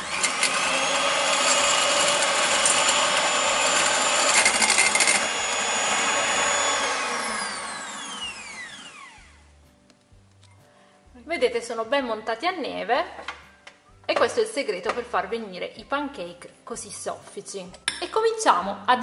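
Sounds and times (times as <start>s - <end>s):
electric hand mixer whining: 0.0s - 9.5s.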